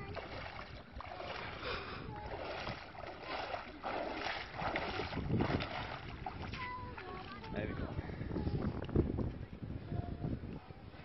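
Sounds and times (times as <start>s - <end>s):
feet splashing through shallow water: 0.0s - 7.9s.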